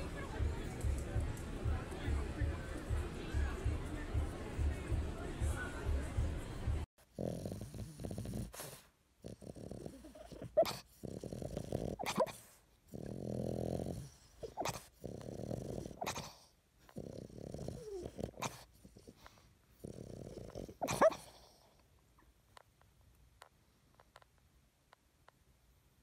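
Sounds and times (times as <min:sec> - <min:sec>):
dog snoring: 0:07.1 - 0:21.8.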